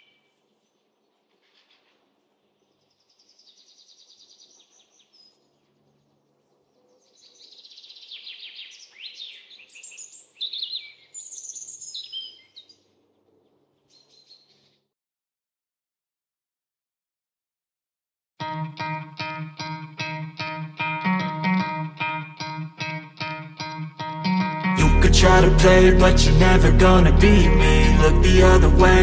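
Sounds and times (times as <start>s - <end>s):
songbirds singing: 0.0s - 14.9s.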